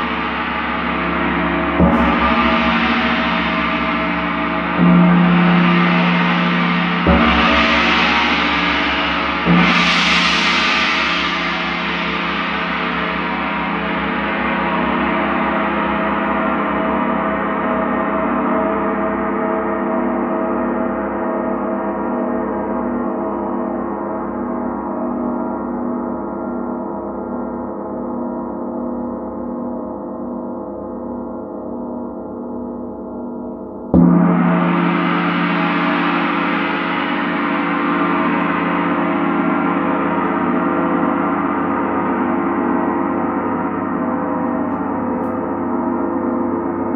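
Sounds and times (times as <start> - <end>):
gong ringing: 0.0 - 18.4, 34.0 - 46.9.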